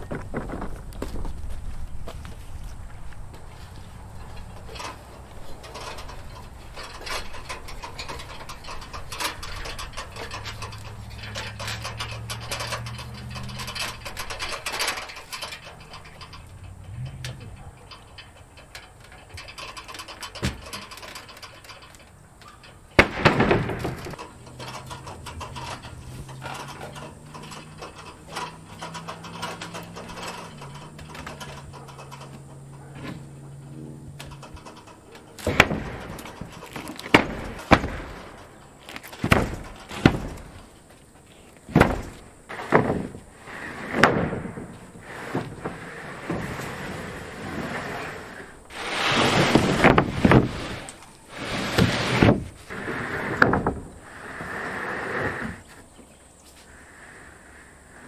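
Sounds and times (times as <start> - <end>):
heavy thump: 41.7 - 43.3.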